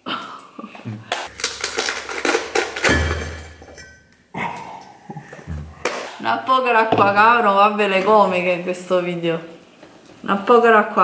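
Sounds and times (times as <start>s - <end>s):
spoon clinking on ceramic bowls: 2.8s - 4.2s.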